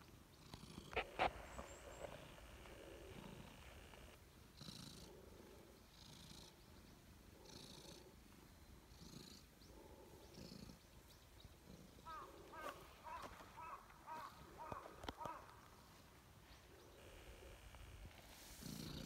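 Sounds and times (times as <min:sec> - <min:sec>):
cat purring: 0:00.4 - 0:06.6, 0:07.3 - 0:12.2, 0:17.0 - 0:19.0.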